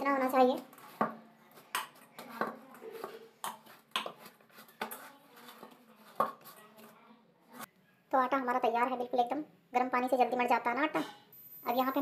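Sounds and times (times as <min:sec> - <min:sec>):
dough kneaded in metal bowl: 0:00.0 - 0:07.0.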